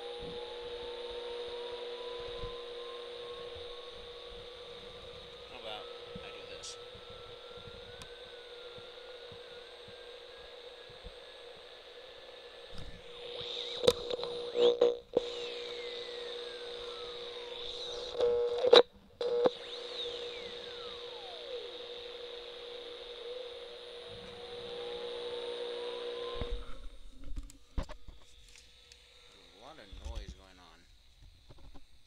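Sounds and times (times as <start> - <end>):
electronic drone with hiss: 0.0 - 32.0
gliding electronic whistles: 19.5 - 26.8.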